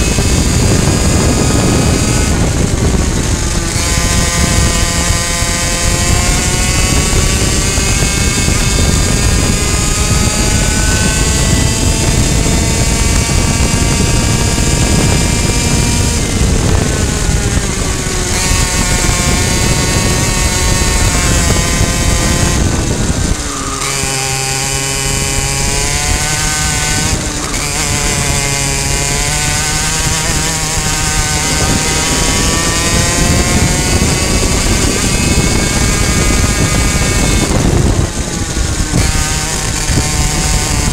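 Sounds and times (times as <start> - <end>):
kart engine at high revs: 0.0 - 40.9
wind noise: 0.0 - 40.9.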